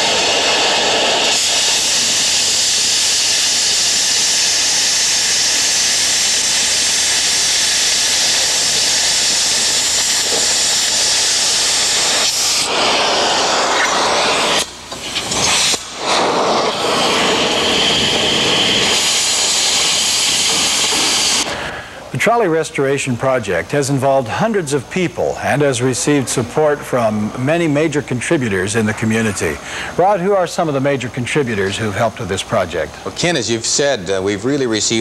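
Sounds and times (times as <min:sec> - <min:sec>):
cutting torch hissing: 0:00.0 - 0:22.9.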